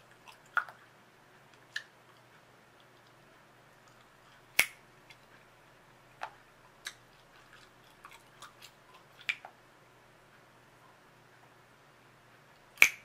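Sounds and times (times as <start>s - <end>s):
bubble gum chewing snaps: 0.1s - 0.9s, 1.5s - 3.2s, 3.8s - 5.3s, 6.2s - 9.6s, 12.8s - 13.0s.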